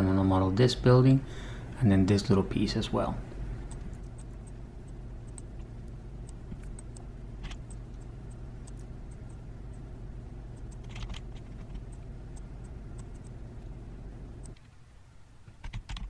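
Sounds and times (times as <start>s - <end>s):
steady low hum: 0.0s - 16.0s
computer mouse clicks: 3.7s - 9.8s, 10.5s - 13.4s, 14.4s - 14.7s.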